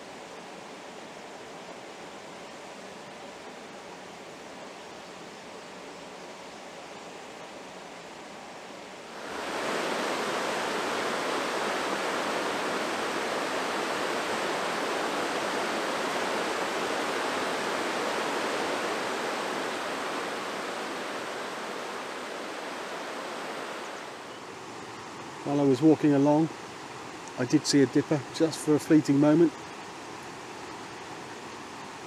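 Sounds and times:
river rapids rushing over rocks: 0:09.1 - 0:24.3.

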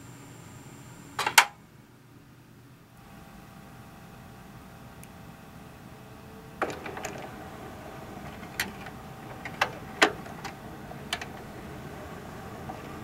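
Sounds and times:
turntable mechanism clicking: 0:06.6 - 0:13.0.

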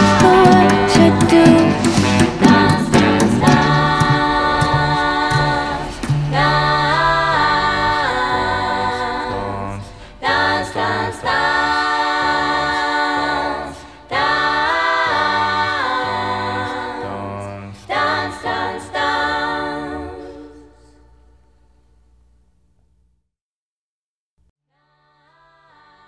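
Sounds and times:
wordless vocal harmonies: 0:00.0 - 0:21.4, 0:25.0 - 0:26.0
singers breathing: 0:03.6 - 0:11.0, 0:13.7 - 0:14.1.

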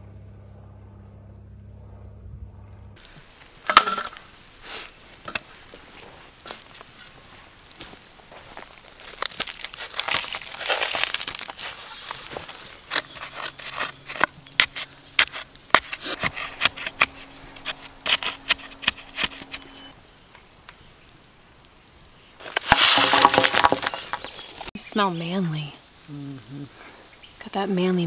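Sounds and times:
faint low hum: 0:00.0 - 0:08.4
soil scraping and crunching: 0:03.0 - 0:20.2, 0:22.4 - 0:24.8.

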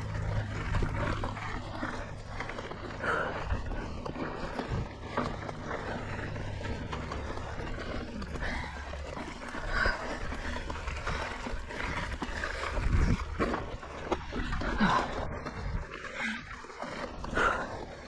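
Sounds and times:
bike tyres over dirt: 0:00.0 - 0:18.0
hard breathing: 0:00.0 - 0:18.0
wind on microphone: 0:11.7 - 0:13.6.

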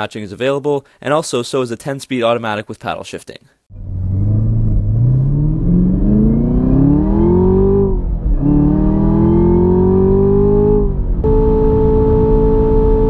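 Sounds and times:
car engine accelerating hard: 0:03.7 - 0:13.0
steady engine drone: 0:03.8 - 0:13.0.

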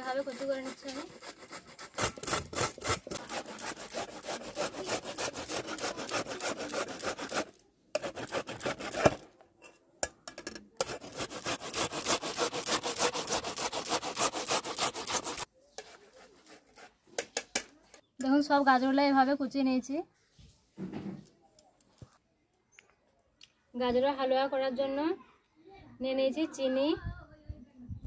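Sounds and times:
carrots grated on metal grater: 0:02.0 - 0:09.2, 0:10.8 - 0:16.8.

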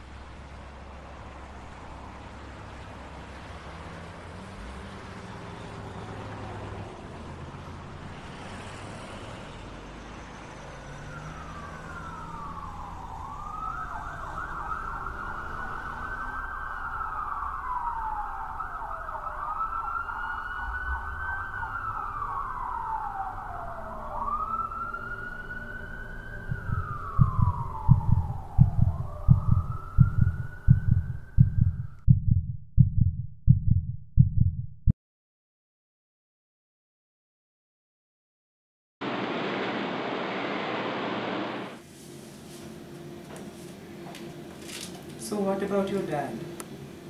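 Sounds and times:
wailing siren: 0:09.9 - 0:32.1
low thumps: 0:26.4 - 0:34.9.

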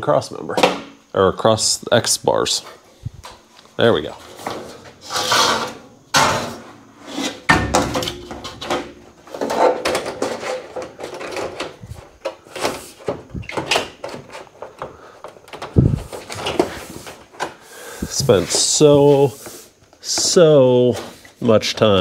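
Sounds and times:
metal panels knocking and scraping: 0:04.2 - 0:17.6.

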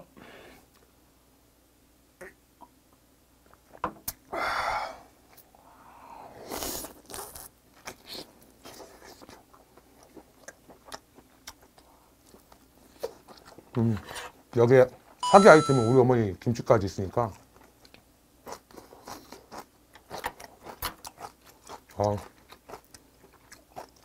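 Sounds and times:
man chewing with wet smacks: 0:06.5 - 0:15.2, 0:17.1 - 0:24.0.

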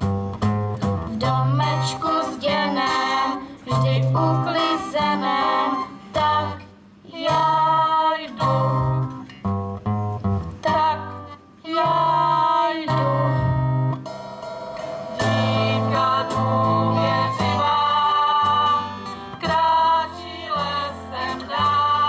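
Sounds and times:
acoustic guitars playing: 0:00.0 - 0:22.0
voices singing along: 0:01.2 - 0:09.0, 0:11.7 - 0:13.6, 0:15.2 - 0:22.0.

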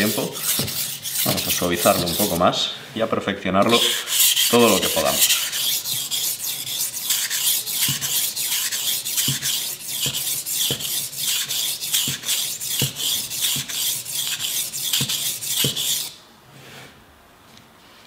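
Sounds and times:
knife scraping on sharpening stone: 0:00.0 - 0:02.4, 0:03.7 - 0:16.2.

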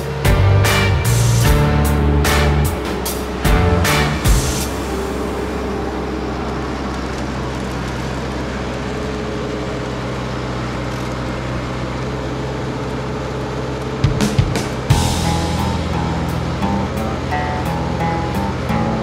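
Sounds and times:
tractor engine running: 0:00.0 - 0:19.0.

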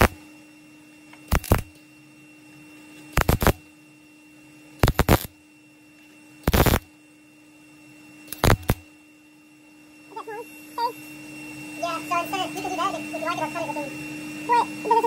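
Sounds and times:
welder crackling bursts: 0:00.0 - 0:00.2, 0:01.3 - 0:01.7, 0:03.1 - 0:03.6, 0:04.8 - 0:05.3, 0:06.4 - 0:06.9, 0:08.3 - 0:08.8
faint steady hum: 0:00.0 - 0:15.0.

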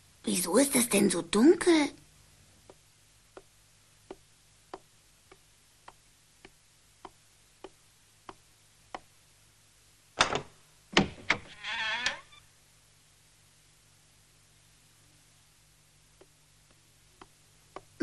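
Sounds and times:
door opening click: 0:10.2 - 0:12.2.

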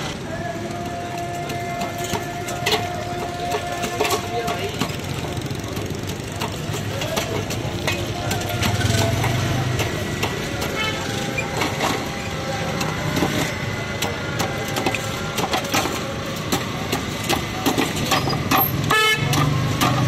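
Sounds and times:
street traffic: 0:00.0 - 0:20.0.

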